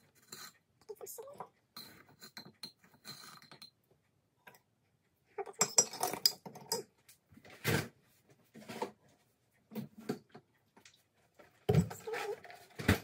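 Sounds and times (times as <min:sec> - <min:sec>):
metal spoon clinking on container: 0:05.5 - 0:06.9.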